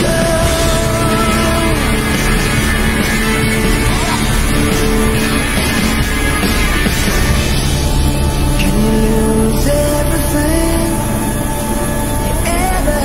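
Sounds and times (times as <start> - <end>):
rock band music: 0.0 - 13.0.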